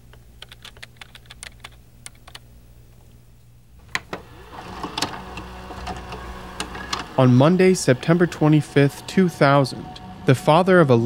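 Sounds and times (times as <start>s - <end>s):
keyboard typing: 0.1s - 2.4s, 3.8s - 9.2s.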